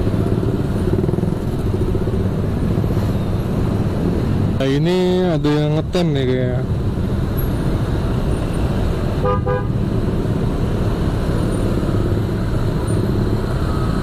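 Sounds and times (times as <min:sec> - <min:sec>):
motorcycle engines rumbling: 0:00.0 - 0:14.0
vehicle horn double toot: 0:09.2 - 0:09.7.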